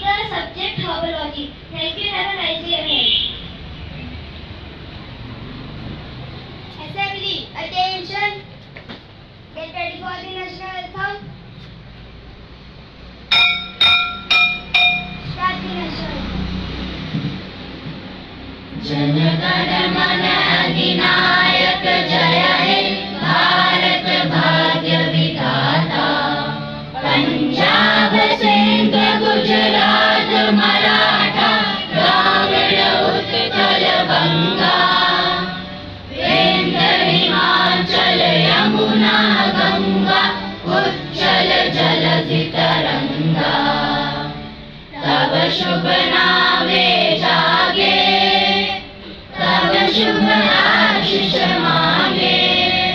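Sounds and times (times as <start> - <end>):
children's choir singing: 14.2 - 52.9.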